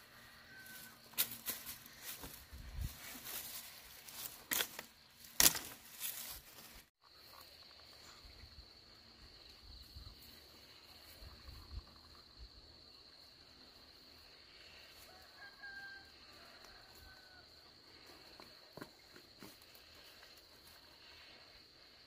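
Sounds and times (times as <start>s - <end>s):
faint rustling in undergrowth: 0.0s - 8.2s
dry grass rustling and snapping: 0.7s - 6.9s.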